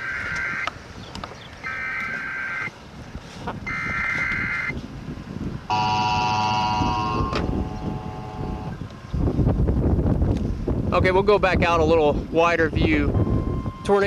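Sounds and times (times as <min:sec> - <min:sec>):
warbling data tones: 0:00.0 - 0:00.7, 0:01.6 - 0:02.7, 0:03.7 - 0:04.7.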